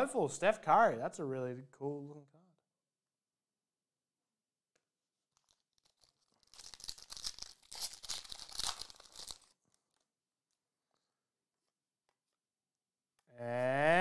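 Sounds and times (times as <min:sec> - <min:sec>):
foil wrapper crinkling and tearing: 0:05.3 - 0:10.2.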